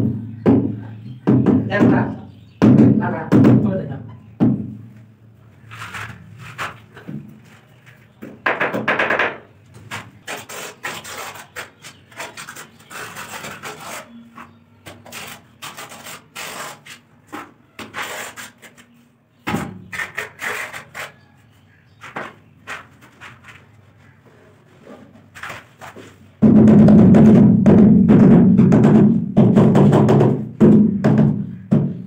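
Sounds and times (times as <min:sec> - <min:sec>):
trowel scraping mortar: 0:09.8 - 0:19.0, 0:19.6 - 0:21.3.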